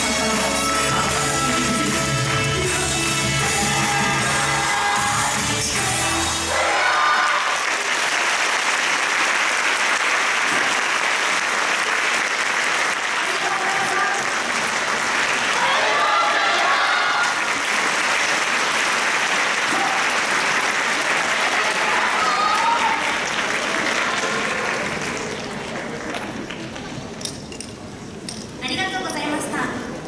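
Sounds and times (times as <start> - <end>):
audience applauding: 3.8 - 27.0.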